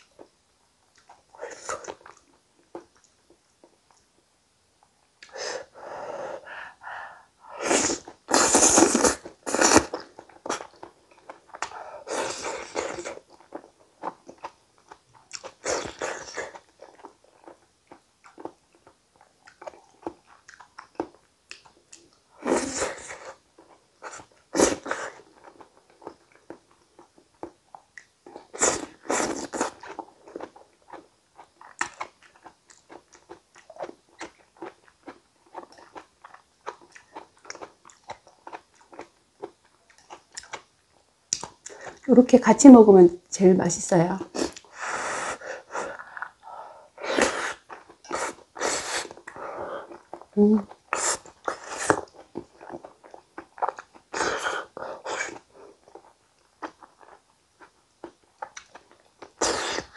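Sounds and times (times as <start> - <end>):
close chewing with mouth clicks: 0.9 - 4.2, 7.9 - 42.1, 44.2 - 59.9.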